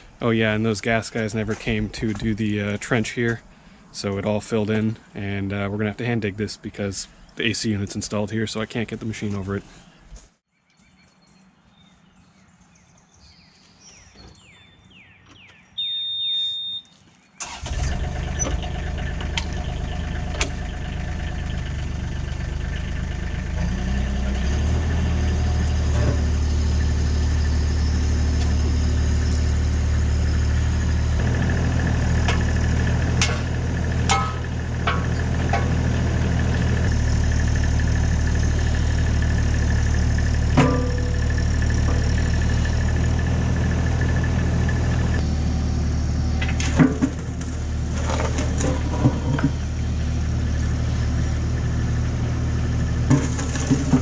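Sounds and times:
diesel engine running: 0.0s - 10.0s, 17.4s - 54.0s
short electronic beep: 15.8s - 17.0s
metallic clanks: 32.2s - 36.0s, 40.5s - 42.3s.

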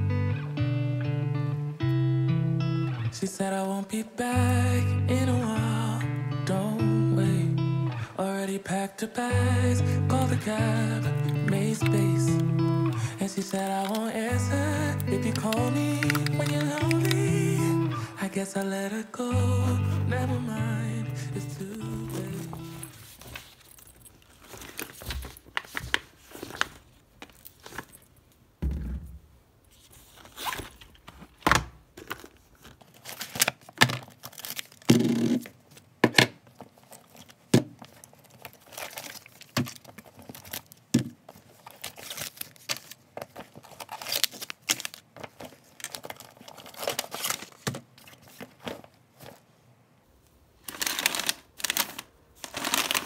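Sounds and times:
plastic snack bag crinkling: 10.2s - 19.3s, 21.3s - 28.3s, 30.0s - 35.8s, 36.5s - 49.4s, 50.6s - 53.0s
packaging rustling and crinkling: 11.2s - 14.4s, 15.1s - 17.7s, 21.6s - 28.4s, 29.7s - 49.6s, 50.6s - 53.0s
items knocking on a table: 28.6s - 29.2s.

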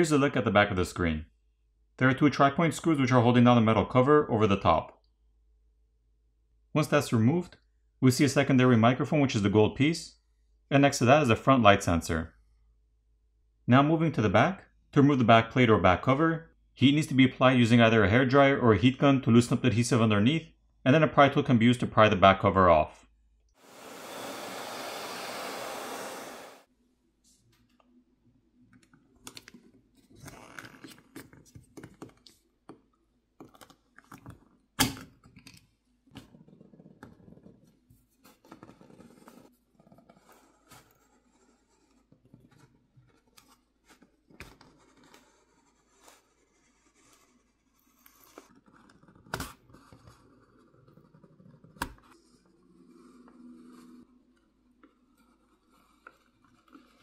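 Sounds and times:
hot-air blower hissing: 23.6s - 26.7s.

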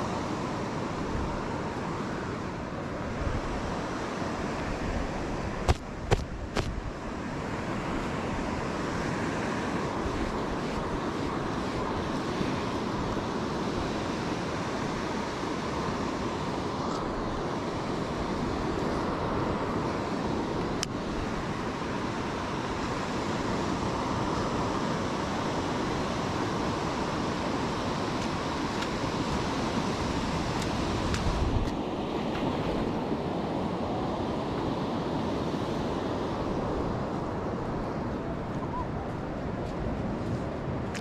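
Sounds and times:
sea surf breaking: 0.0s - 41.0s
wind rumbling on microphone: 0.0s - 41.0s
sharp click: 5.7s - 6.8s.

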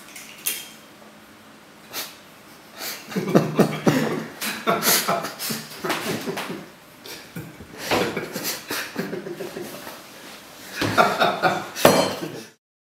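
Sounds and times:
man laughing: 2.8s - 9.9s, 10.7s - 12.6s.

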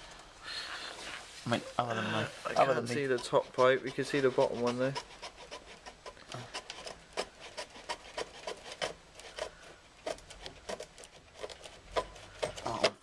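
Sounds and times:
hand saw cutting pipe: 2.6s - 13.0s.

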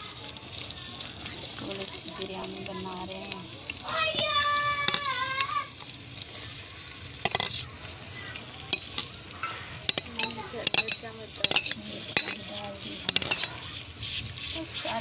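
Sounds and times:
onions sizzling in hot oil: 0.0s - 15.0s
spoon stirring in pot: 7.2s - 15.0s.

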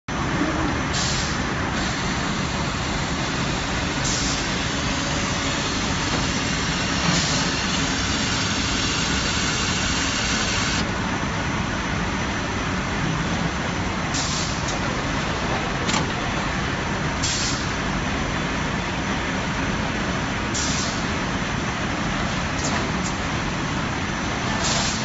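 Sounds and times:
cutting machine running: 1.8s - 10.8s.

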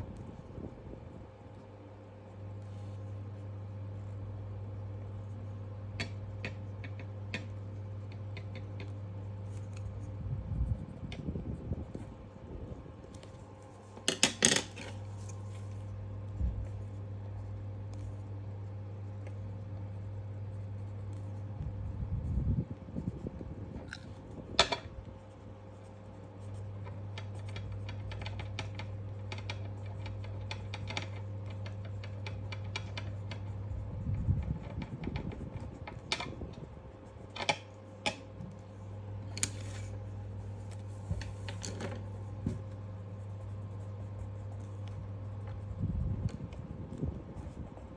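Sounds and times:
steady low hum: 0.0s - 47.9s
pencil scratching on paper: 14.5s - 38.6s, 39.4s - 47.9s.

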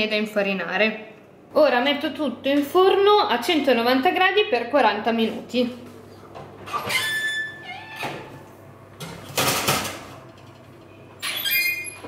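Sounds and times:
short ringing squeak: 6.8s - 7.7s, 11.2s - 12.0s.

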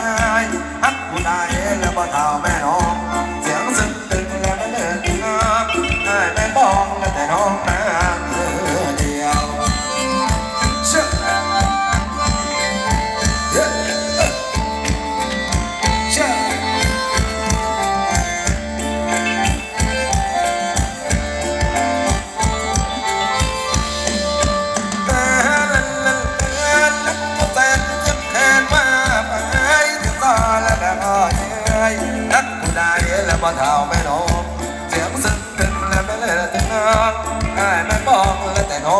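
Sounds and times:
person singing: 0.0s - 21.2s, 22.0s - 38.9s
reed-like melody notes: 0.0s - 33.0s.

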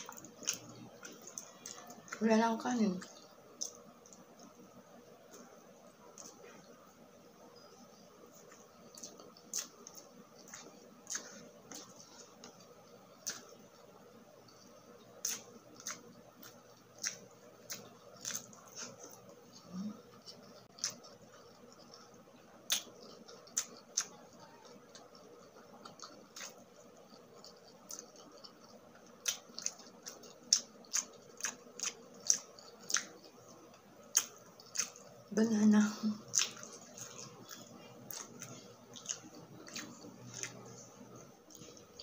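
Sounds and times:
person chewing food: 0.0s - 35.3s, 36.0s - 42.0s.

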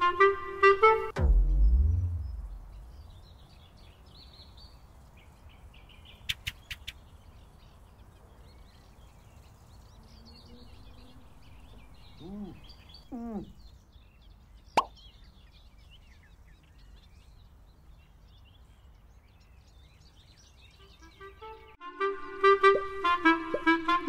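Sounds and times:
small birds chirping: 1.4s - 21.8s
quick sharp clicks: 6.3s - 7.0s.

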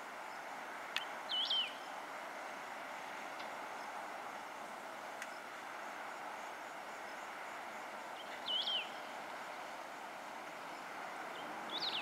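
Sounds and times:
distant highway traffic hum: 0.0s - 12.0s
bird whistled call: 1.3s - 1.8s, 8.4s - 9.0s, 11.7s - 12.0s.

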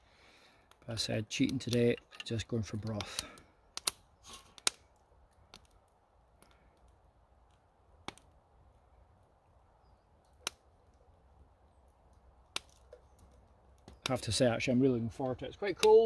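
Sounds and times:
sharp clicks: 2.8s - 4.0s.

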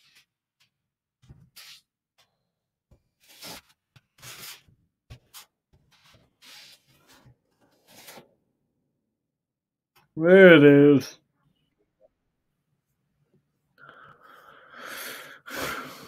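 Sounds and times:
scratchy handling noise: 0.0s - 2.3s, 3.0s - 8.3s.

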